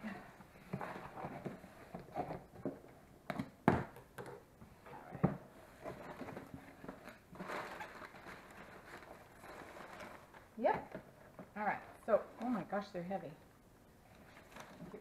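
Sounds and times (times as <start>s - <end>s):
packing paper rustling: 5.7s - 12.7s, 14.1s - 15.0s.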